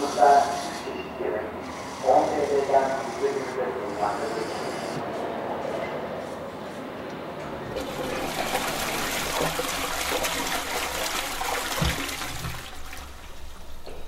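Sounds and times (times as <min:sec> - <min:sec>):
toilet flushing: 0:07.4 - 0:14.0.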